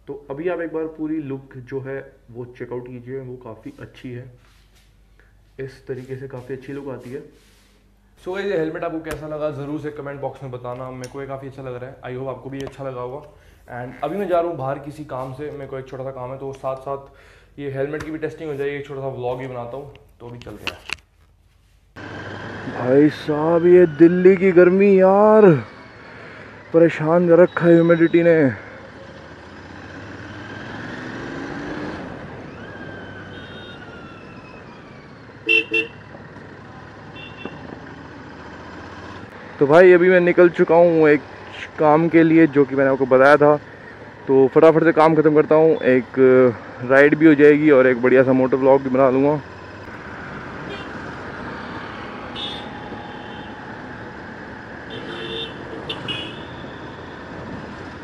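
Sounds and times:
road noise: 0.0s - 21.1s, 21.9s - 58.0s
motorcycle engine: 22.0s - 58.0s
vehicle horn toots: 33.3s - 33.9s, 35.4s - 36.1s, 37.1s - 37.7s, 50.7s - 51.0s, 52.3s - 53.6s, 54.9s - 56.9s.

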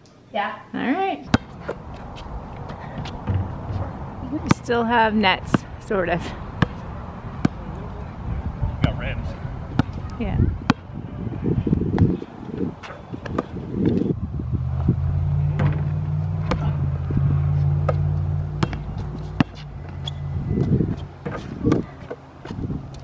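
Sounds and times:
engine humming: 1.2s - 23.0s
basketball bouncing and hitting rim: 1.3s - 4.7s, 6.5s - 6.8s, 7.4s - 7.7s, 9.7s - 10.0s, 10.6s - 10.9s, 12.8s - 14.0s, 14.8s - 22.6s.

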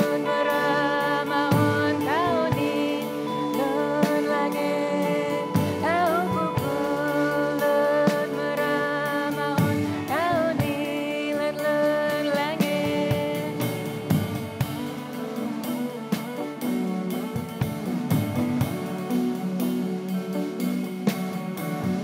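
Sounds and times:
woman singing with vibrato: 0.0s - 15.8s
plucked lute with drone: 0.0s - 22.0s.

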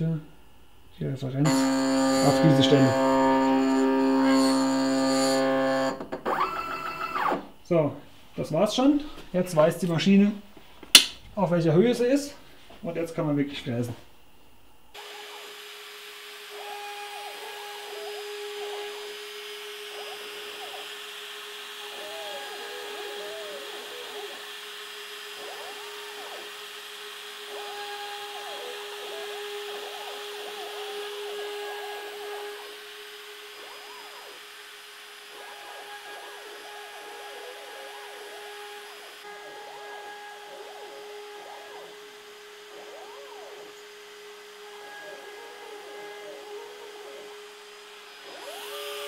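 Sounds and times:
router spindle high whine: 1.4s - 7.6s, 14.8s - 49.0s
axis motors warbling tones: 1.5s - 7.6s, 16.6s - 49.0s.

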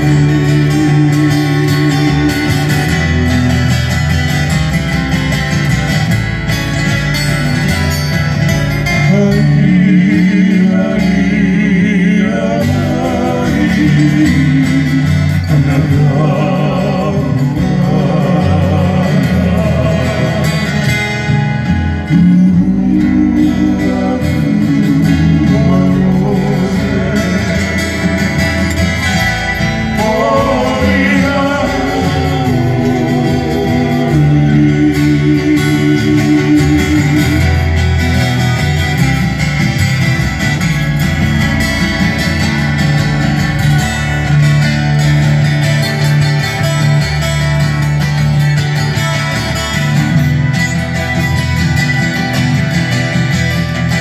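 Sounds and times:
men singing: 0.0s - 3.8s, 8.9s - 38.9s
bass line: 0.0s - 54.0s
strummed acoustic guitars: 0.0s - 54.0s.

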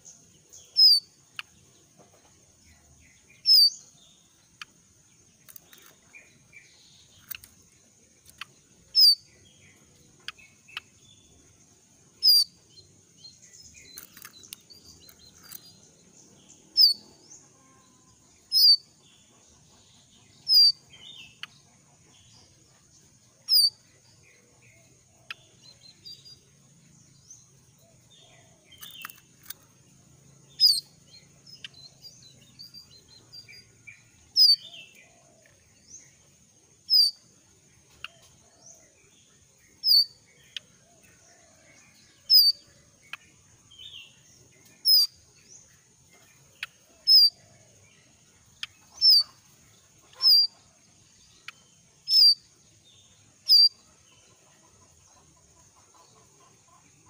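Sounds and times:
soft bird chips and twitters: 0.0s - 1.8s, 2.7s - 11.5s, 12.1s - 17.2s, 23.4s - 23.8s, 28.6s - 36.1s, 36.8s - 37.2s, 39.6s - 40.7s, 42.2s - 47.5s, 48.1s - 50.6s, 51.3s - 52.5s, 53.4s - 53.8s.

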